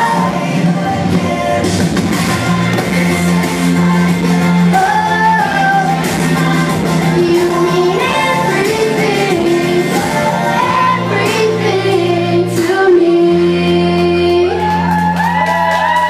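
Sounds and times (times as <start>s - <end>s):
backing music: 0.0s - 16.0s
boy singing into a microphone: 4.7s - 14.9s.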